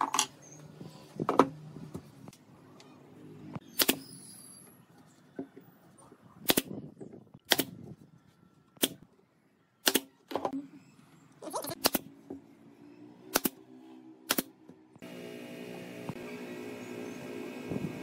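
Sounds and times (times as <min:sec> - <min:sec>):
nail gun firing: 0:03.8 - 0:04.0, 0:06.4 - 0:06.8, 0:07.4 - 0:07.8, 0:09.8 - 0:10.1, 0:13.3 - 0:13.6, 0:14.3 - 0:14.5.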